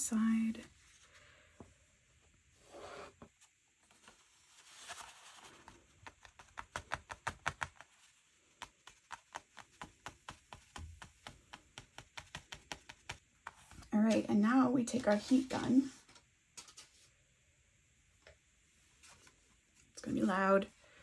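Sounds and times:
soft rustling: 13.4s - 17.2s, 18.8s - 20.0s.

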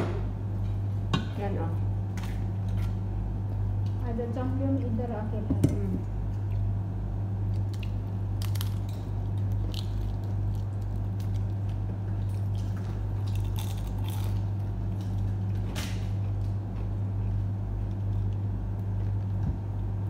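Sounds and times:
loud low hum: 0.0s - 20.0s
fried bread tearing and crackling: 7.4s - 16.4s
wet chewing: 7.5s - 15.4s.

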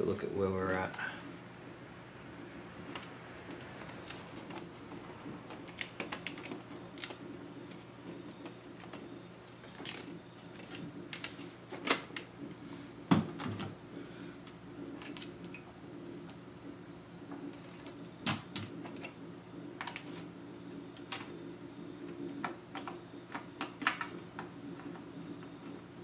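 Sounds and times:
steady low hum: 0.0s - 26.0s
laptop parts clicking and knocking: 3.0s - 12.3s.

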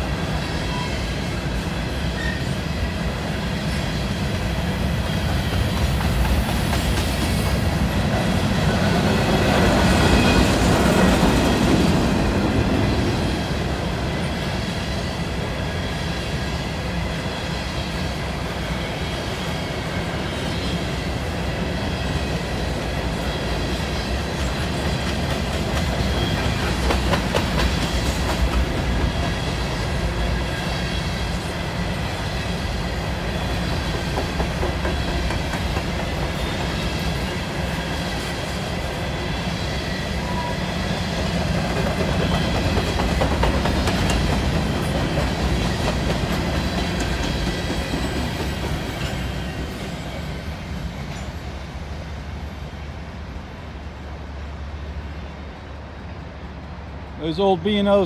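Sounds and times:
freight train rolling past: 0.0s - 58.0s
wheels clacking over rail joints: 24.2s - 30.5s, 33.3s - 37.4s, 41.3s - 50.2s.

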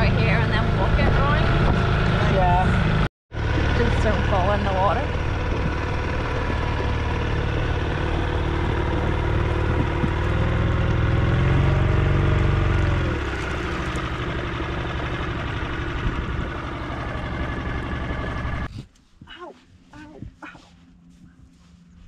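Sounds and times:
outboard motor running: 0.0s - 18.7s.

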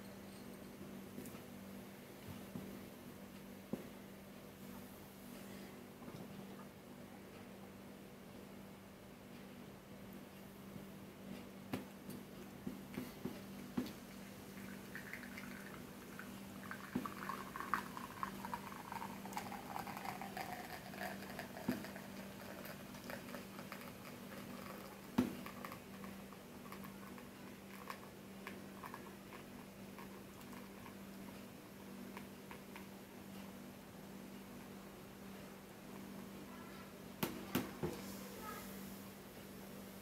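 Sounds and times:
coffee dripping into cup: 13.7s - 31.4s.

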